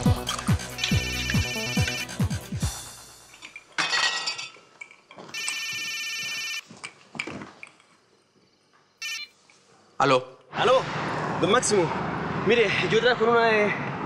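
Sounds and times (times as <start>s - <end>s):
mobile phone ringing: 0.8s - 2.4s, 5.3s - 6.7s, 9.0s - 9.4s
glass clinking on glass tray: 3.3s - 5.0s.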